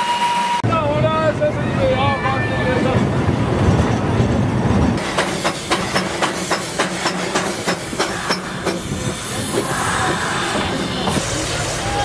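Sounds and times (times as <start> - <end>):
steam locomotive chuffing: 5.0 - 12.0.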